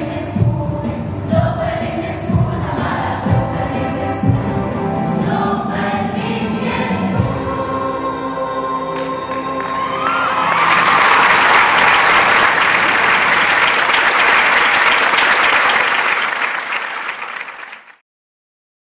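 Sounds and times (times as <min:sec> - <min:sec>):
crowd applauding: 0:09.0 - 0:18.0.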